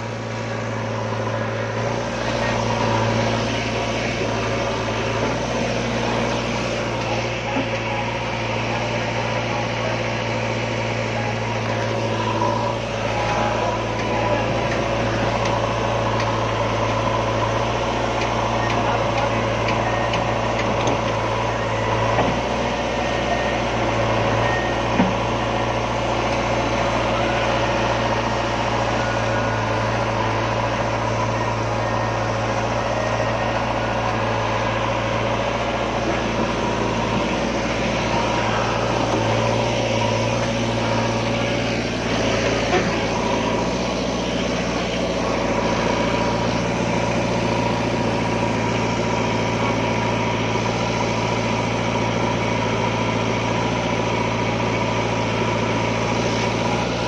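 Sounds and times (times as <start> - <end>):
backhoe diesel engine running: 0.0 - 57.0
tractor engine running: 0.0 - 57.0.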